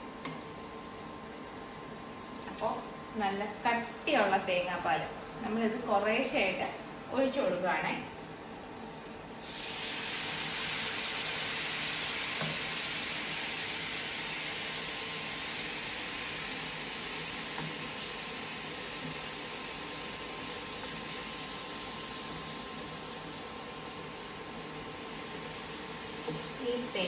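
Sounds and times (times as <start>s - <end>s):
coconut milk sizzling in a pan: 0.0s - 27.0s.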